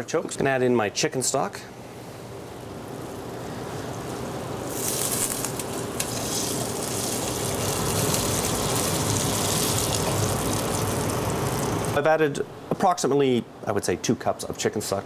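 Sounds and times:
liquid splashing and sizzling: 0:03.0 - 0:12.0.

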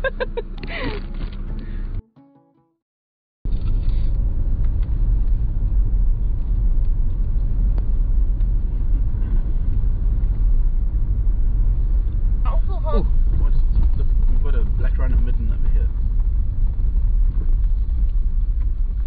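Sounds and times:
car engine rumble: 0:00.0 - 0:02.0, 0:03.5 - 0:19.0
road noise inside car: 0:00.0 - 0:02.0, 0:03.5 - 0:19.0.

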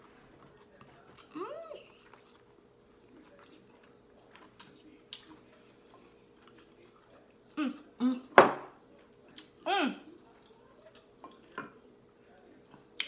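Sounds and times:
faint chewing: 0:00.0 - 0:08.0.

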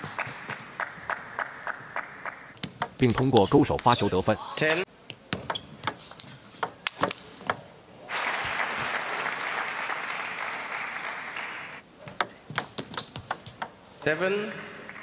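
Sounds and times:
audience applauding: 0:08.1 - 0:11.8, 0:14.4 - 0:15.0.

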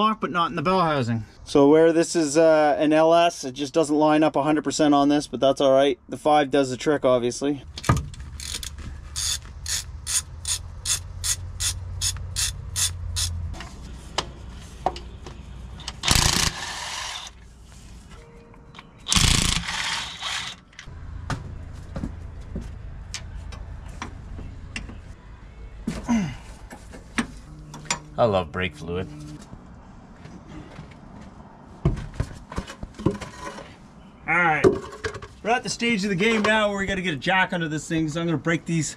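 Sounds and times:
socket ratchet clicking: 0:07.8 - 0:13.4
cordless power tool bursts: 0:16.0 - 0:17.3, 0:19.1 - 0:20.6.

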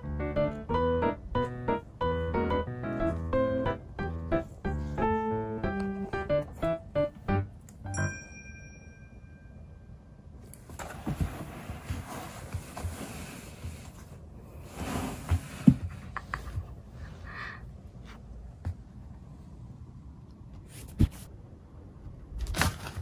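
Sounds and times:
piano music phrase: 0:00.0 - 0:08.4.

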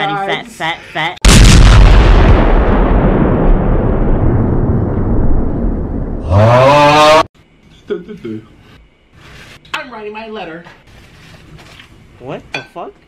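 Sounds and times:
loud blast with deep rumble: 0:01.2 - 0:06.4.

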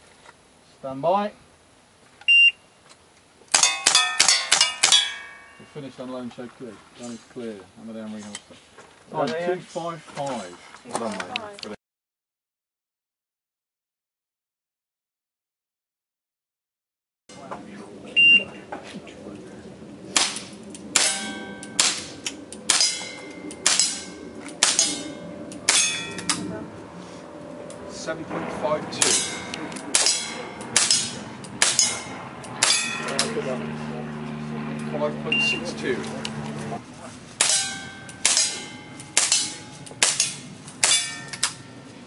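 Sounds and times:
handgun shots: 0:03.5 - 0:05.2
pistol shots: 0:03.5 - 0:05.4, 0:20.2 - 0:25.1, 0:29.0 - 0:33.0
metallic ring of steel plate: 0:03.6 - 0:05.9, 0:21.0 - 0:26.5, 0:28.0 - 0:33.3, 0:37.4 - 0:42.0.

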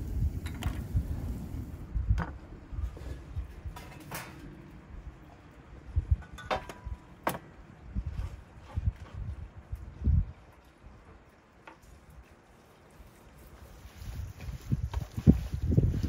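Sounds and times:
wind rumble on microphone: 0:00.0 - 0:11.3, 0:12.9 - 0:16.0
knocks and clinks on metal: 0:06.2 - 0:07.4.

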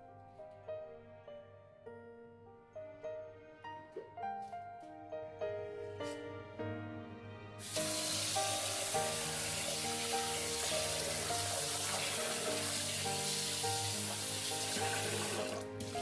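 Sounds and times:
tap water running into pot: 0:07.6 - 0:16.0.

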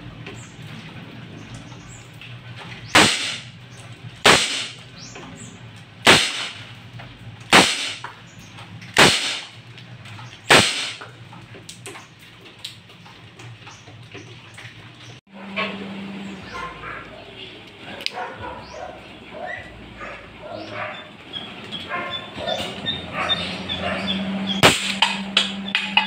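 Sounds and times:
airsoft revolver shots: 0:02.9 - 0:03.5, 0:04.2 - 0:04.8, 0:06.0 - 0:06.6, 0:07.5 - 0:08.0, 0:09.0 - 0:09.5, 0:10.5 - 0:11.0, 0:24.6 - 0:25.2.

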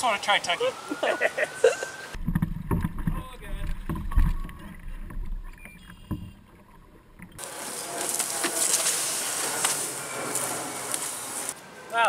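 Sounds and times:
water sloshing: 0:01.9 - 0:11.6
plastic boat knocking: 0:02.2 - 0:07.3
tub dragged through tall grass: 0:07.0 - 0:11.6.

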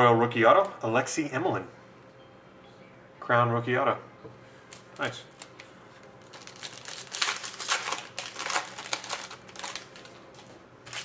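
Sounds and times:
foil wrapper crinkling: 0:04.7 - 0:11.0.

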